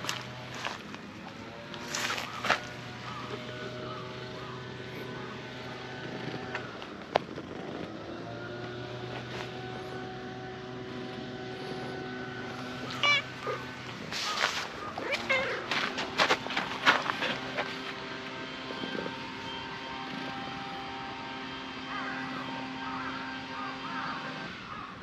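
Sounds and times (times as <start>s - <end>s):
distant engine droning: 0.0s - 25.0s
rustling of fur and fabric: 12.6s - 18.0s.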